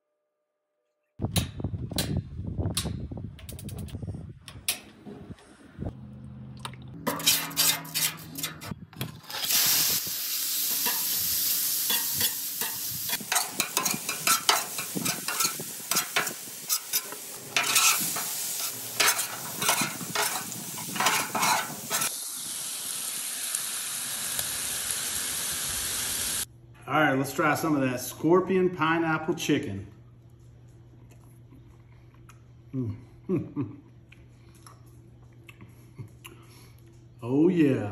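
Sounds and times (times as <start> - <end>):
metal spatula scraping and tapping: 7.0 - 8.8, 11.9 - 22.1
chicken sizzling on griddle: 9.3 - 26.5.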